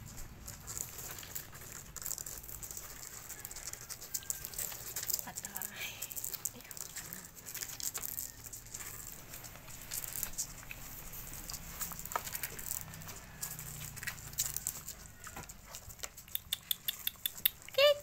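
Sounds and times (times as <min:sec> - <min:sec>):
puppies suckling wet smacking: 0:12.3 - 0:18.0.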